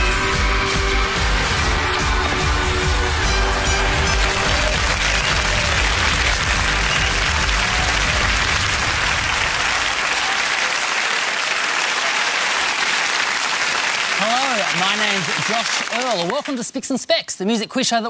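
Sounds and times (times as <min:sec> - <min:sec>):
music: 0:00.0 - 0:09.9
studio audience applauding: 0:00.0 - 0:17.1.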